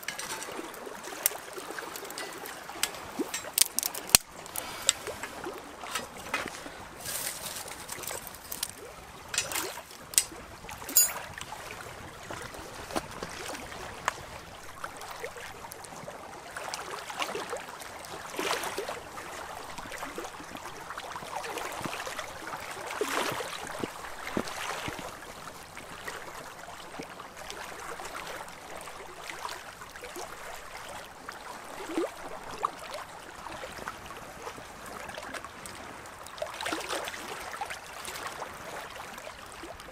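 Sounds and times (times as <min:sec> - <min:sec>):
twigs crackling in a wood fire: 0:00.0 - 0:10.4
lake waves lapping on rocky shore: 0:00.0 - 0:39.9.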